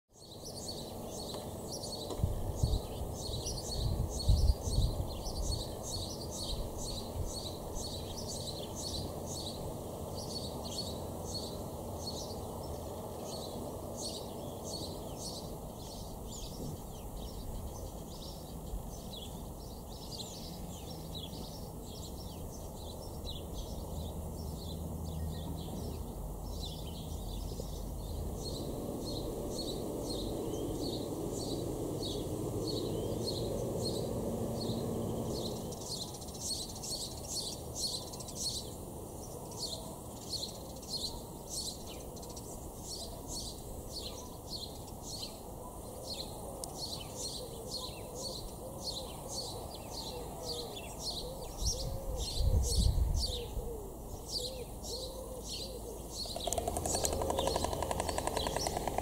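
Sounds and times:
songbirds chirping: 0.1s - 59.0s
low wind rumbles: 56.2s - 59.0s.

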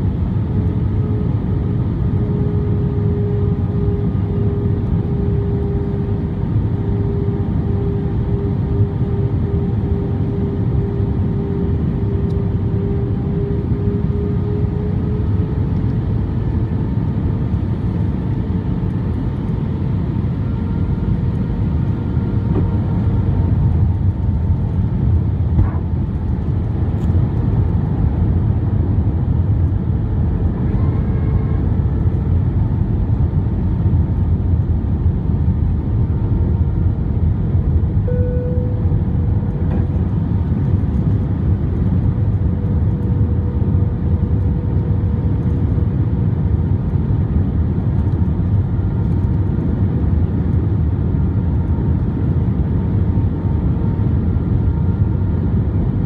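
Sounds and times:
airplane cabin engine and airflow rush: 0.0s - 56.0s
faint steady tone: 38.0s - 38.8s.

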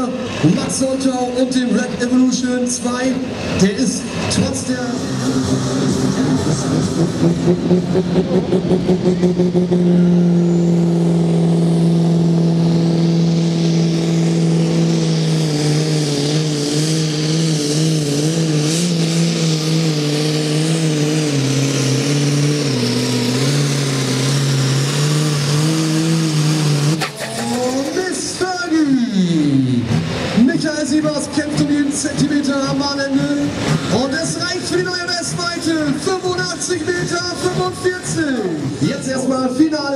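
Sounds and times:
tractor diesel engine at full throttle: 0.0s - 39.9s.

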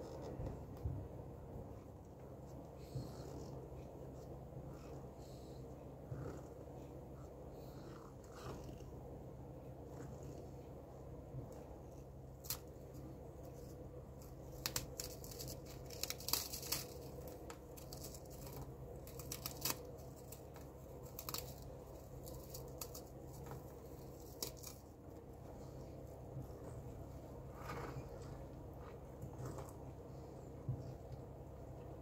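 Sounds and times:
biscuits snapping and crumbling: 14.2s - 24.9s.

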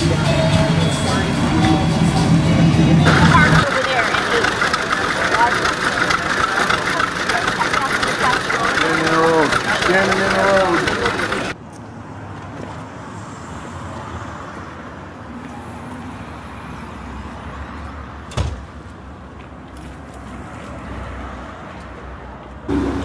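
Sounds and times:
pickup truck engine running: 0.0s - 11.6s.

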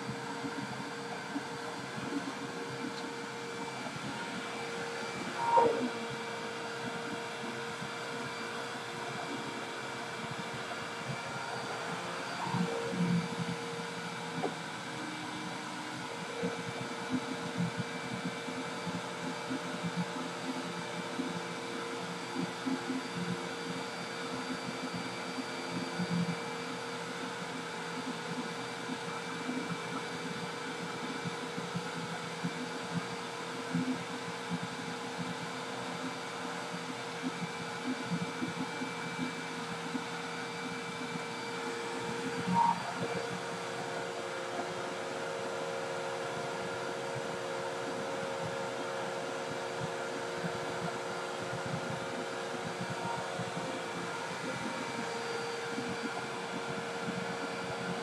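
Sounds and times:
vacuum cleaner running: 0.0s - 58.0s
short squeak: 5.4s - 5.9s.

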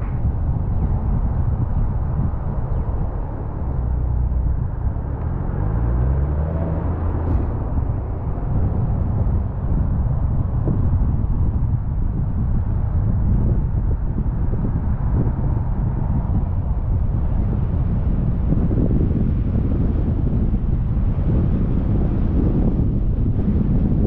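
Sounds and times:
car engine: 0.0s - 24.0s
road noise: 0.0s - 24.0s.

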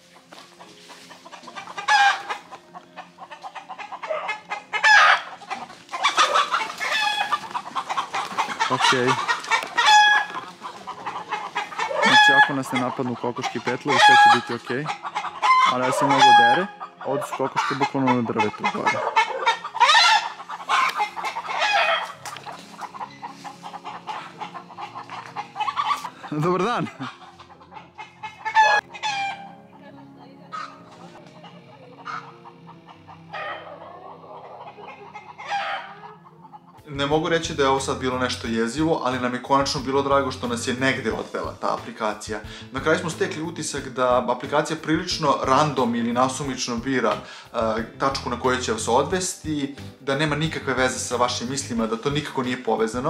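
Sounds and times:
chickens clucking: 0.0s - 53.0s
rooster crowing: 9.8s - 10.4s.

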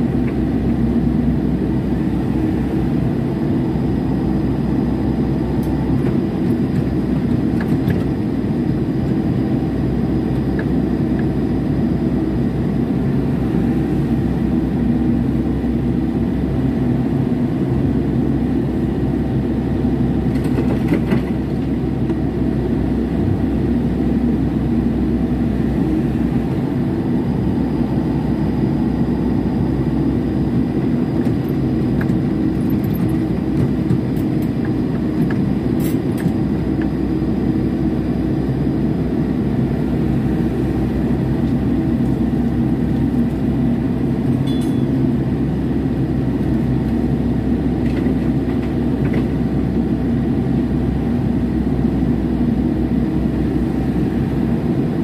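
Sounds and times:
excavator diesel engine running: 19.4s - 37.0s.

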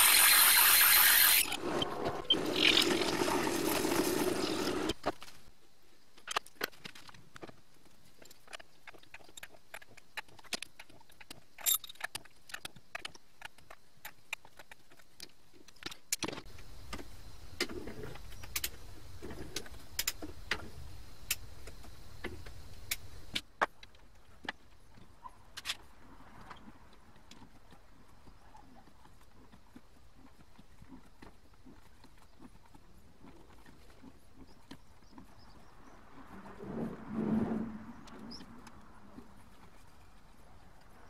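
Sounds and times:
lathe drilling into metal: 0.0s - 1.6s.

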